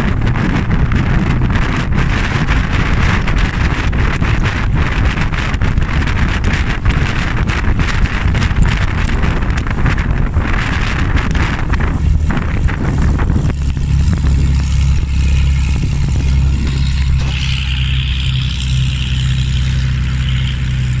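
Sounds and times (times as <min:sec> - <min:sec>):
aircraft engine running: 0:00.0 - 0:21.0
wind buffeting microphone: 0:00.0 - 0:21.0.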